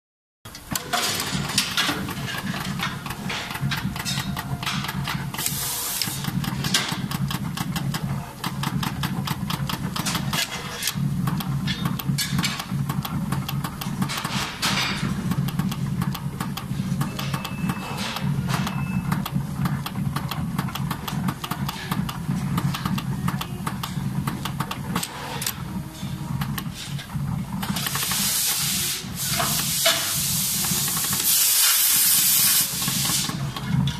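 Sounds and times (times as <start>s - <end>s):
fast dense machine clicking: 0.5s - 33.9s
low motor hum: 0.6s - 29.5s
short air hisses: 5.4s - 6.3s, 27.9s - 33.4s.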